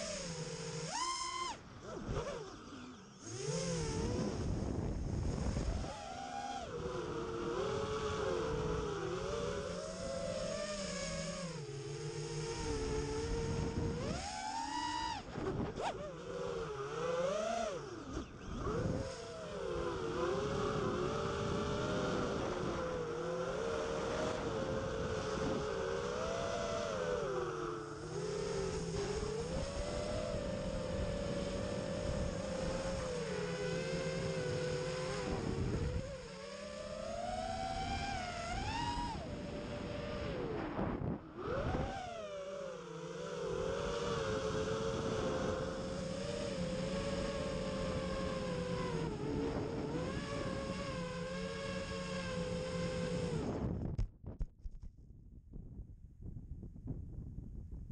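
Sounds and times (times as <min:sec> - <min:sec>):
quadcopter motors whining: 0:00.0 - 0:54.0.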